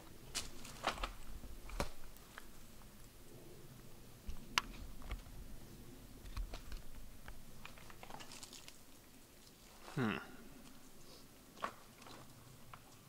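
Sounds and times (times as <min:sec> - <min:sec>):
loose rock clinking underfoot: 0:06.2 - 0:10.9.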